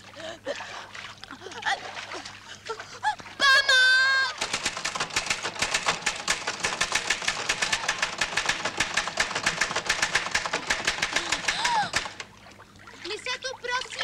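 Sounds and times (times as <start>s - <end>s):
woman's wavering cry: 1.3s - 4.4s, 11.2s - 12.0s
typewriter-style clicking: 4.4s - 12.3s.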